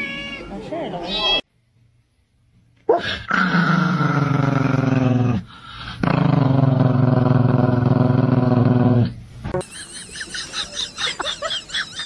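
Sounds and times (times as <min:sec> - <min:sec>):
small dog growling: 0:02.9 - 0:09.1.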